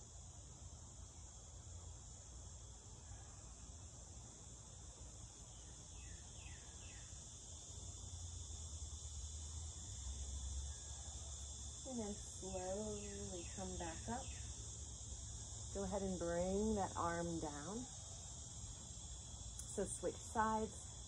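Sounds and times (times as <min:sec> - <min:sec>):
crickets chirring: 0:00.0 - 0:21.0.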